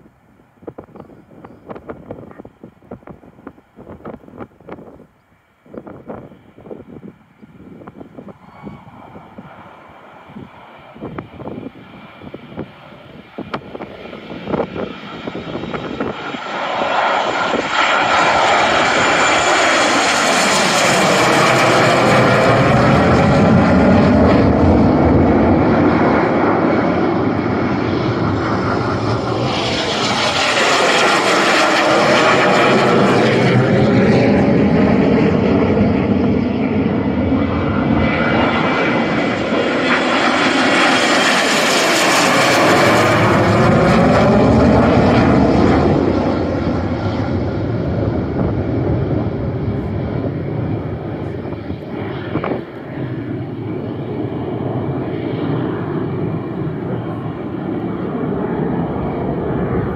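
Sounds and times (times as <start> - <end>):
jets flying past low: 5.8 - 59.9.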